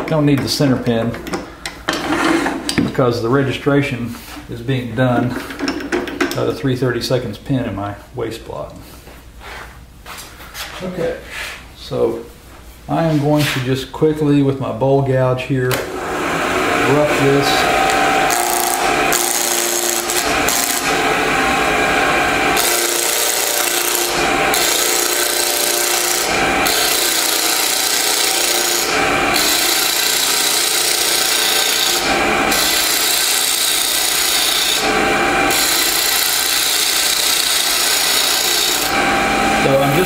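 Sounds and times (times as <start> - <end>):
lathe humming: 15.7 - 40.0
gouge scraping spinning wood: 16.0 - 40.0.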